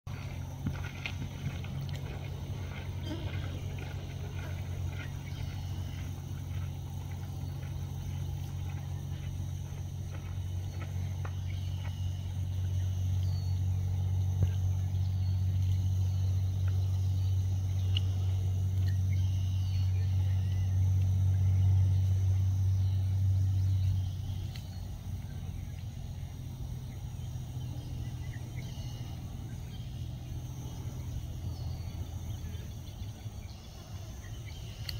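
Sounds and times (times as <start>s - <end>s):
vehicle engine humming: 0.0s - 34.9s
faint bird chirps: 22.8s - 34.9s.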